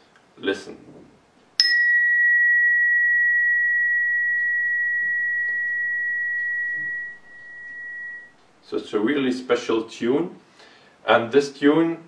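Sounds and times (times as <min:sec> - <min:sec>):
mallet strike: 0:01.6 - 0:08.3
pure high ringing tone: 0:01.6 - 0:08.6.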